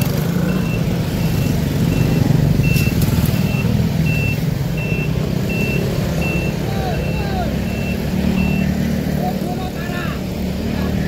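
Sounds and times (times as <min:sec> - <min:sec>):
reversing alarm beeping: 0:00.4 - 0:08.8.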